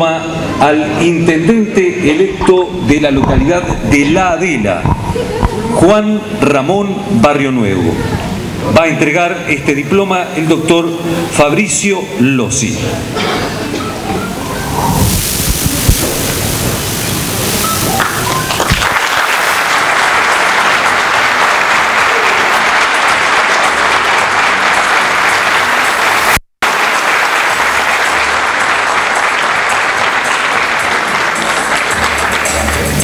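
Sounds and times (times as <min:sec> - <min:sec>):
audience applauding: 0:16.2 - 0:33.0.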